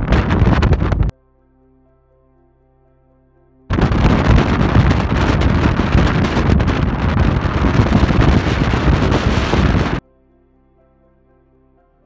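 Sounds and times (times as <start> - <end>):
gale wind on microphone: 0.0 - 1.1, 3.7 - 10.0.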